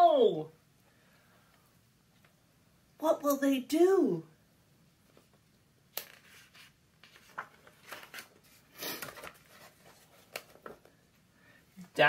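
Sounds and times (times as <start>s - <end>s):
book pages turning: 5.1s - 11.0s.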